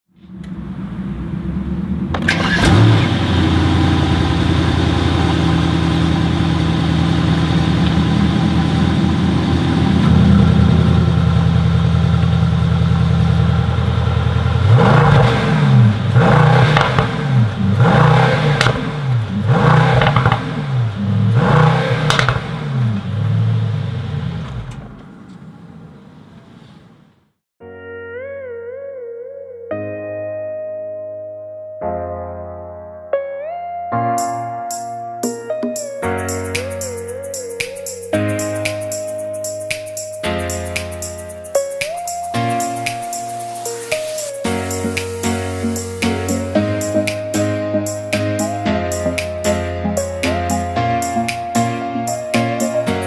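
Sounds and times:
car engine starting and revving: 0.3 - 26.9
car engine idling: 0.4 - 26.2.

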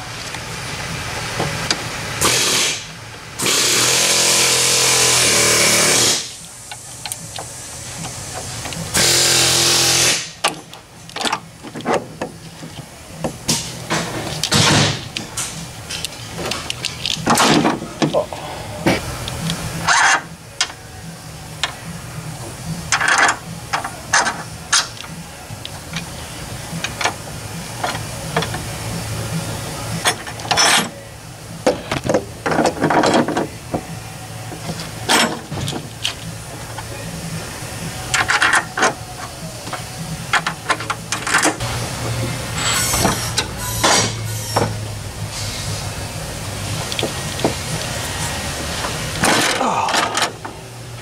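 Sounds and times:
low shop hum: 0.0 - 51.0.

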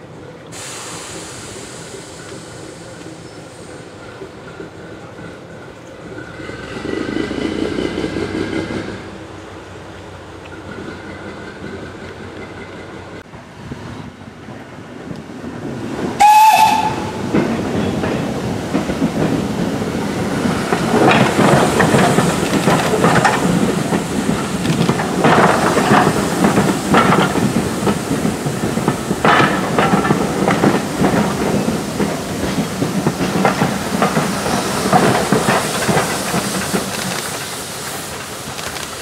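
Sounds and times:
train wheels clicking over rails: 0.4 - 13.3, 14.4 - 39.0
steam locomotive whistle: 16.2 - 17.2.

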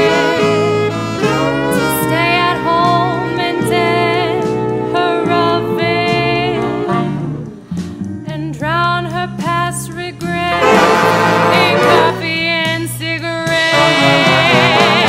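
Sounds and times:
saxophone section playing jazz chords: 0.0 - 7.7, 10.4 - 12.8, 13.5 - 15.0.

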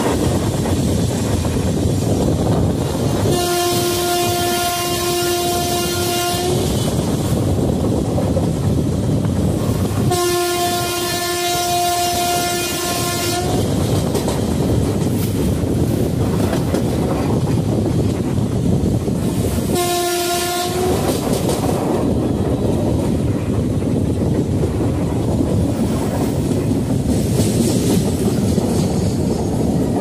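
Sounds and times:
train rumble and wheel clatter: 0.0 - 30.0
locomotive horn blasts: 3.2 - 6.8, 10.0 - 13.6, 19.7 - 21.1.

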